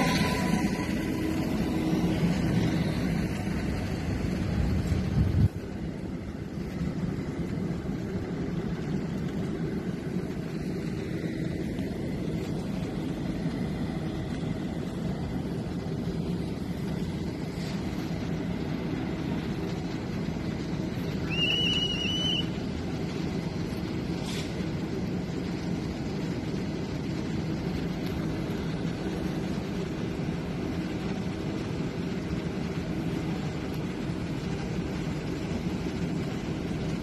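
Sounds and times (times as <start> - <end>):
high-pitched tone: 0.0 - 2.4
train equipment humming: 0.0 - 37.0.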